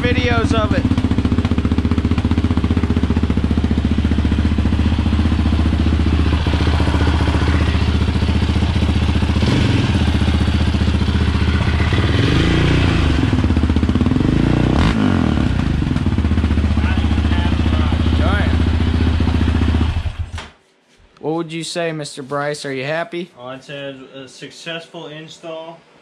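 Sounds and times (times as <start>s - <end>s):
engine idling and revving: 0.0s - 20.4s.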